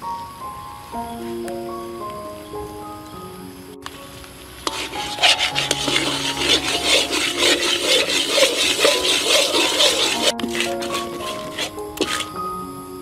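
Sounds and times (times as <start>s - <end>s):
spatula scraping thick mixture: 4.7s - 12.4s.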